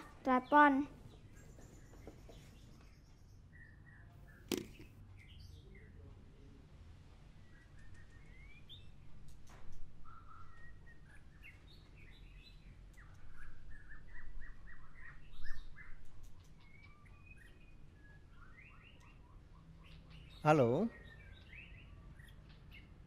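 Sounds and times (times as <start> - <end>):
pet birds chirping: 0.0 - 6.5, 7.1 - 23.0.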